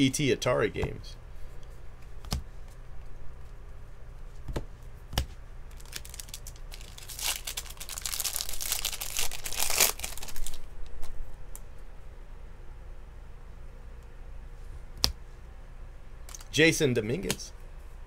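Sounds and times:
foil wrapper tearing and crinkling: 0:05.7 - 0:10.7.

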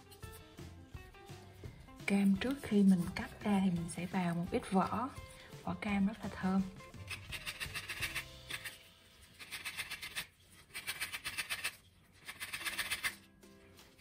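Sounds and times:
orange peel rasping on grater: 0:06.9 - 0:13.2.

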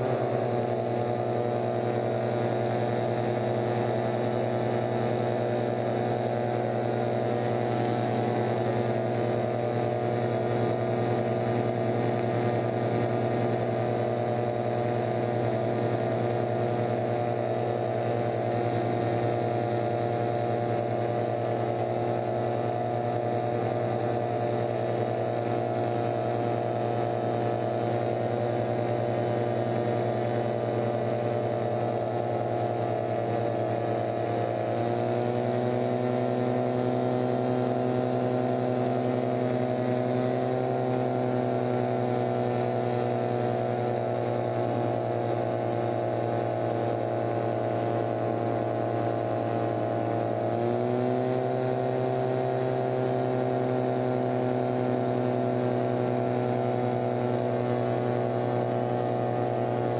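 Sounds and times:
engine and propeller droning: 0:00.0 - 0:59.9.

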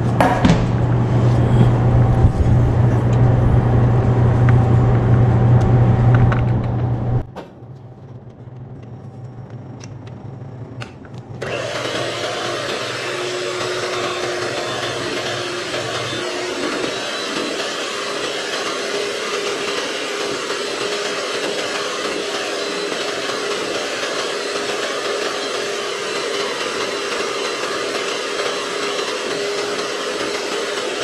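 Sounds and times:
electric hand mixer whisking: 0:11.4 - 0:31.0.

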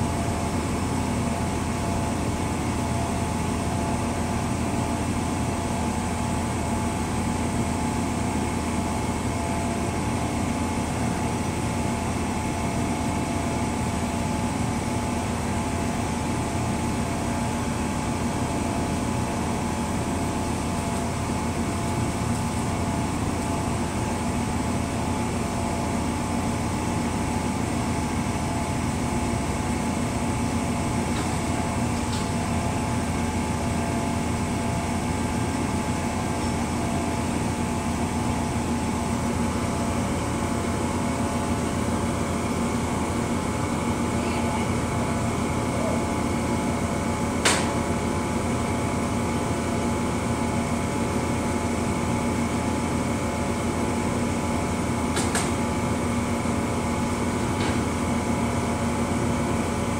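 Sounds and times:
train idling hum: 0:00.0 - 0:59.9.

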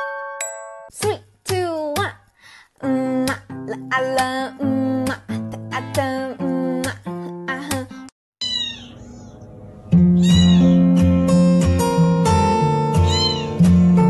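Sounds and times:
kitten meowing: 0:08.4 - 0:09.1, 0:10.2 - 0:11.0, 0:13.0 - 0:13.6
plucked-string music: 0:09.0 - 0:14.0.

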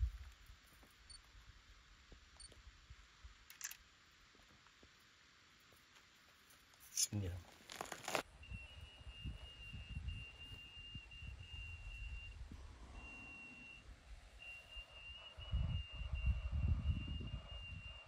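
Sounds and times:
wind rumbling on microphone: 0:00.0 - 0:00.5, 0:08.3 - 0:13.0, 0:15.3 - 0:18.0
high whistle-like tone: 0:08.4 - 0:18.0.

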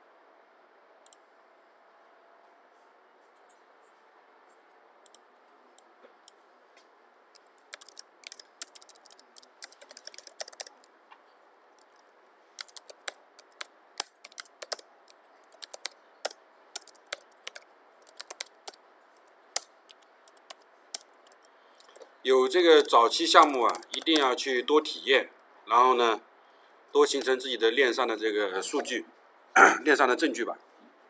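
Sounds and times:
typing on computer keyboard: 0:07.3 - 0:10.9, 0:11.7 - 0:24.4.

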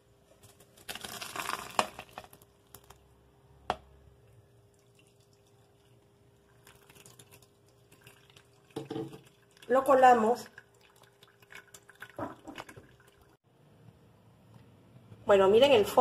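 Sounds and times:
liquid pouring through strainer: 0:00.4 - 0:03.1, 0:04.6 - 0:13.4
liquid trickling and dripping: 0:04.3 - 0:13.4.

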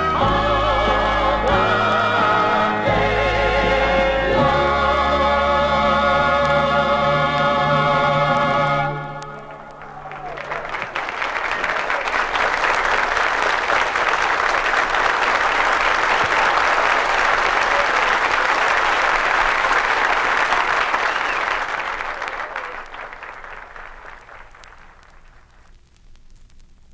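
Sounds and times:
audience applauding: 0:09.2 - 0:25.7.

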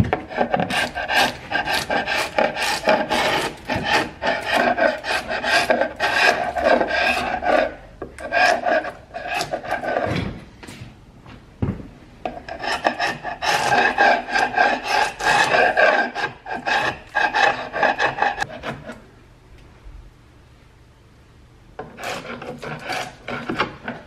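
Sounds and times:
chisel scraping paint off wood: 0:00.0 - 0:10.1, 0:12.3 - 0:19.0, 0:21.8 - 0:24.0.

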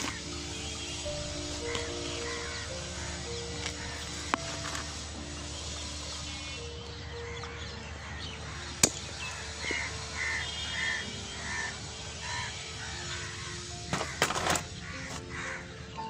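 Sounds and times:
soft background music: 0:00.0 - 0:16.0
crow cawing: 0:01.6 - 0:04.6, 0:06.4 - 0:15.9.

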